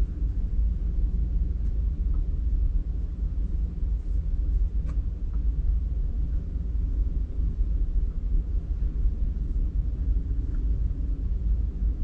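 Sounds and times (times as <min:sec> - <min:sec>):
steady low rumble: 0:00.0 - 0:12.0
faint click: 0:04.8 - 0:05.4.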